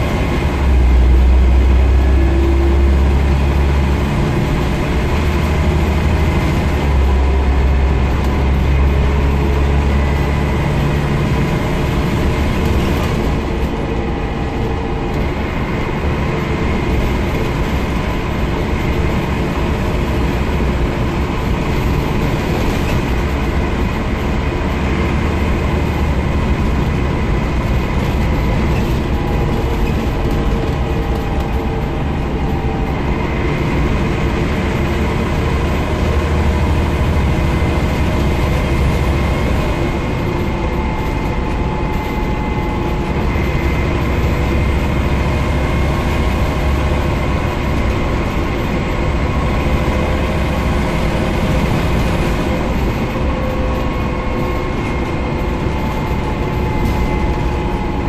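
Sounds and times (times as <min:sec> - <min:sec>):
bus engine and road noise: 0:00.0 - 0:58.0.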